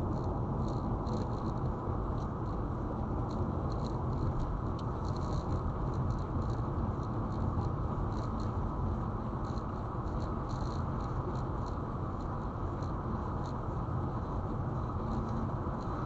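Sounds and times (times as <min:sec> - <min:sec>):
car road and engine noise: 0:00.0 - 0:16.0
faint light ticks: 0:03.2 - 0:08.6, 0:09.4 - 0:13.6.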